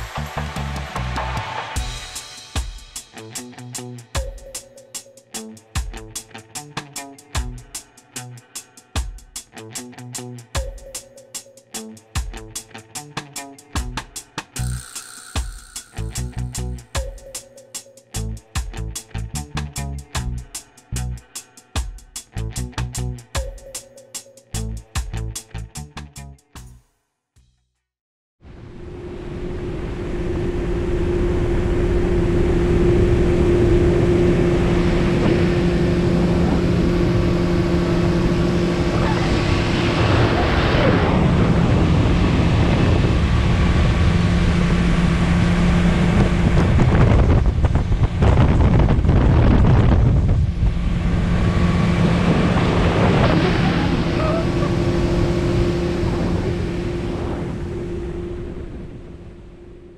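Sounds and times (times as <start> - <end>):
boat motor droning: 28.6 - 40.6, 41.2 - 48.2, 50.4 - 59.9
water rushing along hull: 28.7 - 46.9, 49.9 - 59.2
wind on microphone: 28.9 - 59.4.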